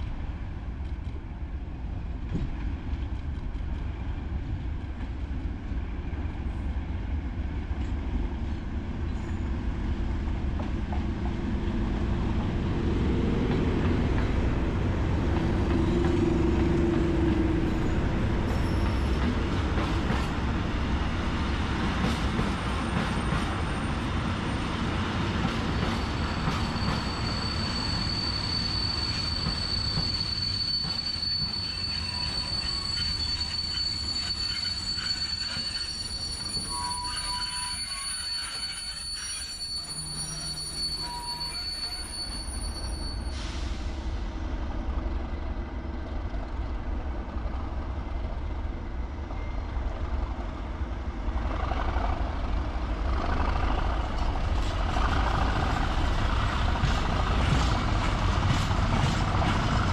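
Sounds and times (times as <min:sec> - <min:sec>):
diesel locomotives passing: 0:00.0 - 0:59.9
high wheel squeal: 0:15.7 - 0:20.2, 0:25.6 - 0:44.0.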